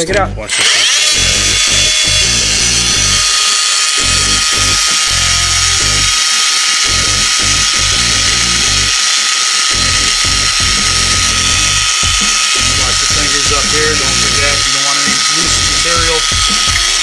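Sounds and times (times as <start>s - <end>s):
pipe threader motor whine: 0.5s - 17.0s
background music: 6.8s - 17.0s.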